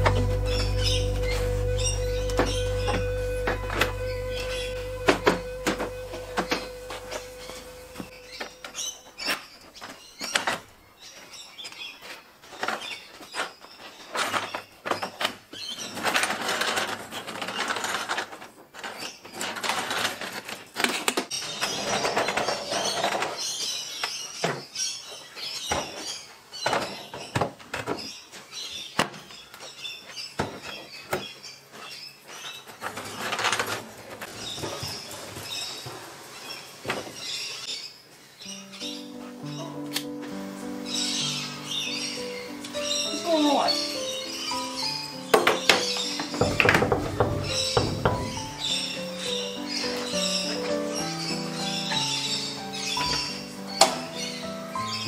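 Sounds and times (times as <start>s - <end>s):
wheels squeaking: 0.0s - 10.5s, 42.8s - 55.0s
carts rolling on concrete: 12.0s - 23.6s
caster pedals knocking: 46.4s - 48.7s.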